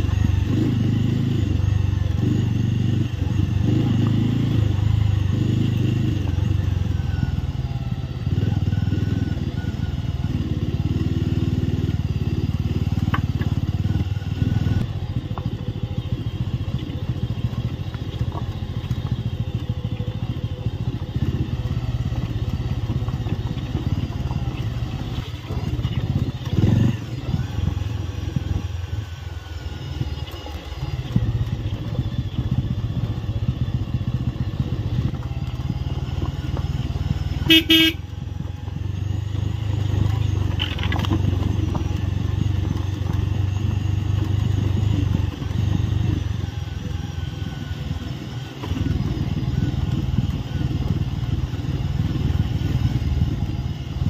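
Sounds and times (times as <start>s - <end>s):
motorcycle engine running: 0.0s - 54.0s
tyres on rough gravel: 0.0s - 54.0s
short horn beep: 37.4s - 38.1s.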